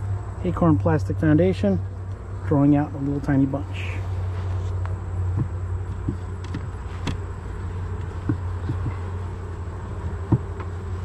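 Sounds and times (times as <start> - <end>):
bees humming: 0.0 - 11.0
light wooden knocks: 4.8 - 7.2, 7.9 - 9.2, 10.0 - 10.8.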